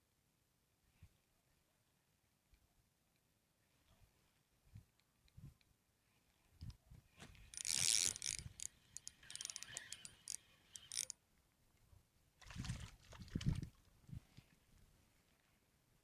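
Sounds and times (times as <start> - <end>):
fishing reel clicking whir: 7.4 - 11.2.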